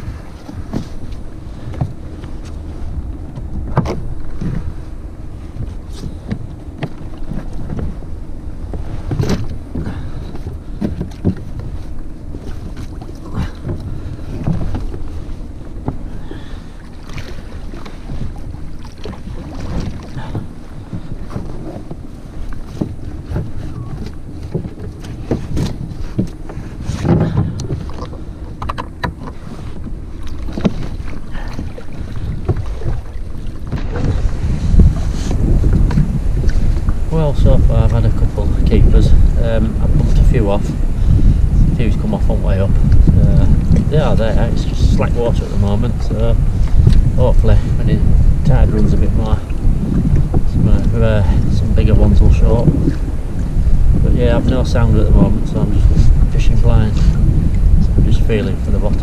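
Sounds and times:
water lapping against kayak hull: 0:00.0 - 0:59.0
wind buffeting microphone: 0:00.0 - 0:59.0
knocks and clicks of deck fittings: 0:27.0 - 0:29.4.

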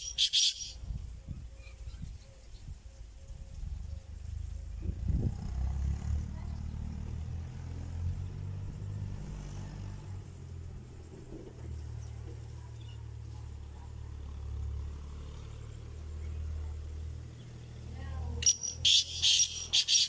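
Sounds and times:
francolin calling: 0:00.0 - 0:00.9, 0:18.4 - 0:20.0.

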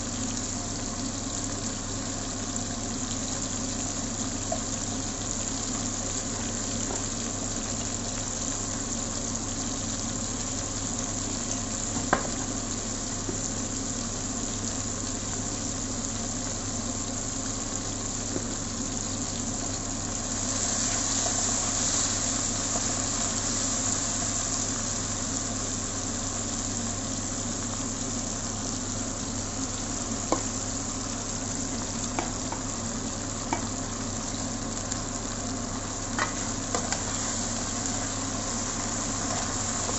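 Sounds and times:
vegetables sizzling in oil: 0:00.0 - 0:39.9
spatula tapping on pan: 0:32.1 - 0:32.7, 0:33.5 - 0:33.7.

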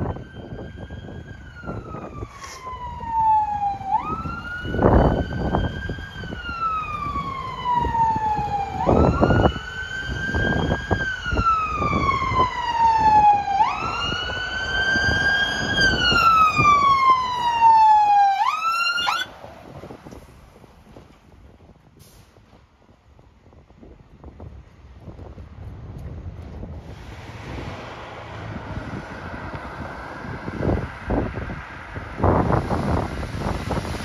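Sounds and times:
fire engine siren wailing: 0:00.0 - 0:19.4, 0:27.0 - 0:34.0.

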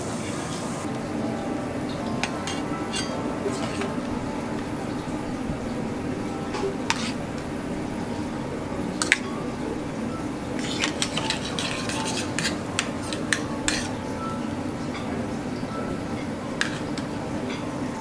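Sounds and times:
steady low hum: 0:00.8 - 0:18.0
metal spoon clinking on steel cup: 0:02.2 - 0:04.9, 0:10.6 - 0:14.0.

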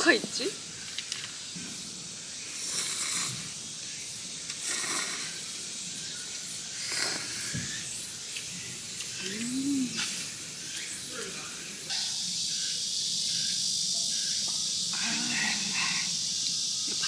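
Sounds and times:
person humming: 0:09.2 - 0:10.0.

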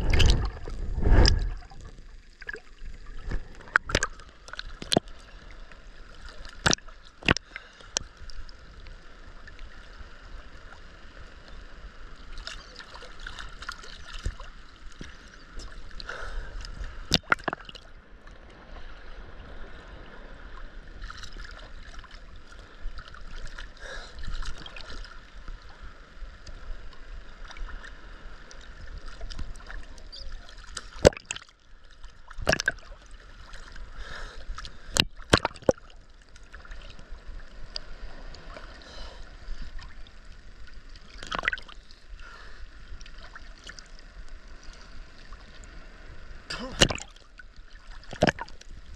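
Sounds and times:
ocean water sloshing and gurgling: 0:00.0 - 0:48.9
water slapping: 0:32.4 - 0:32.9, 0:35.0 - 0:35.9, 0:41.2 - 0:41.8, 0:46.5 - 0:47.2, 0:47.8 - 0:48.6.

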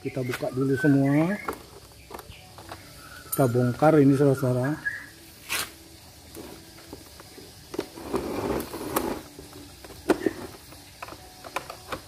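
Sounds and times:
rattling scrape: 0:08.0 - 0:09.3.

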